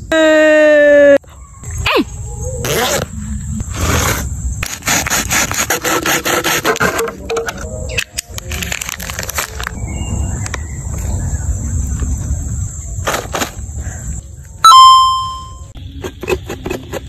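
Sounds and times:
low rumble: 7.6s - 13.0s
loud ringing tone with overtones: 14.6s - 15.8s.

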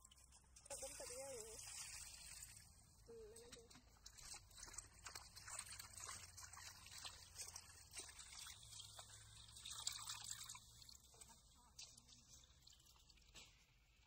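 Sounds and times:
water splashing in a steel bowl: 0.0s - 14.0s.

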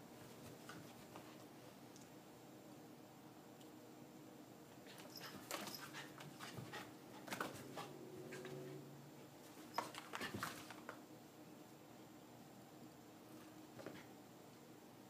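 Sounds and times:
animals scuffling: 4.9s - 8.8s, 9.4s - 11.0s.

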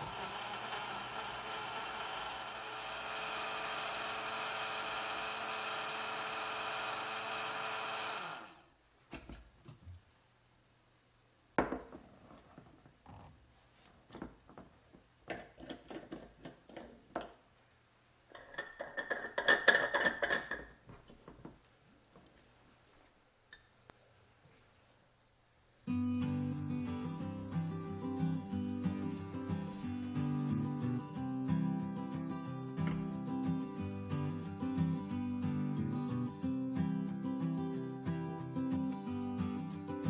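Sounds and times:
blender motor running: 0.0s - 8.7s.

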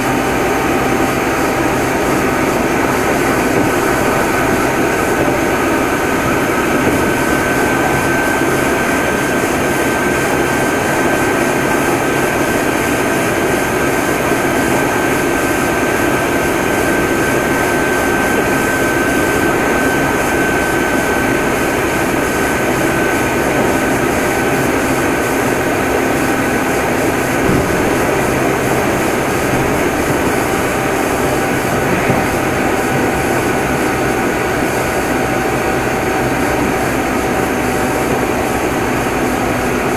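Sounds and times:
high-pitched motor whine: 0.0s - 39.9s
low motor whine: 0.0s - 39.9s
train wheels rumbling on rail: 0.0s - 39.9s.

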